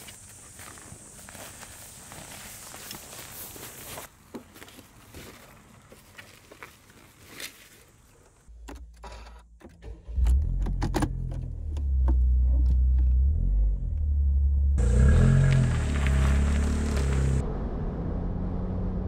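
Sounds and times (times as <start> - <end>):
small car engine starting: 9.0 - 19.0.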